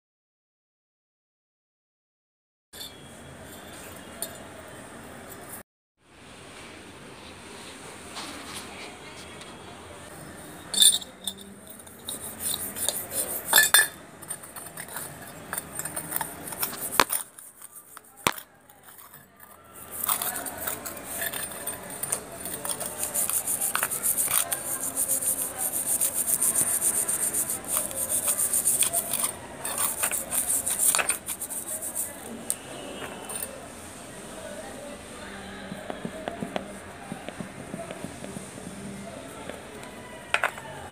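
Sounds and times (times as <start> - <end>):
scrubbing metal lamp: 11.7 - 32.2.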